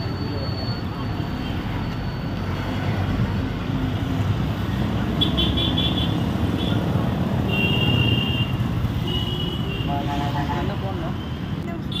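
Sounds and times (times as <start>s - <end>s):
street traffic: 0.0s - 12.0s.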